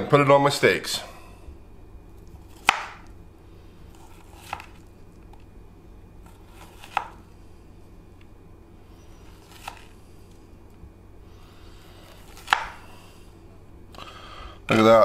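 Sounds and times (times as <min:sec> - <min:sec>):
knife slicing butter: 0:12.1 - 0:12.9.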